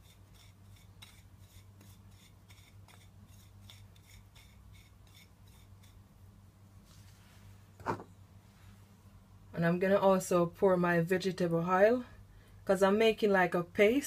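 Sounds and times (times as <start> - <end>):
fingers scraping spice on a plate: 0.0 - 6.0.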